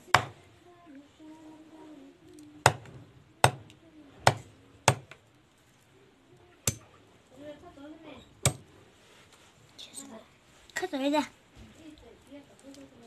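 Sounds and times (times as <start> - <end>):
knife chopping on wooden block: 8.4 - 8.6.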